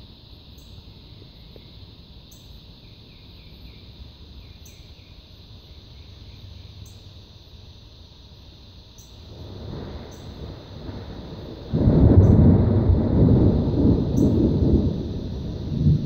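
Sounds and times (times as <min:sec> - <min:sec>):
crickets trilling: 0:00.0 - 0:16.0
sharp high insect call: 0:00.0 - 0:16.0
faint chirps: 0:00.5 - 0:07.3.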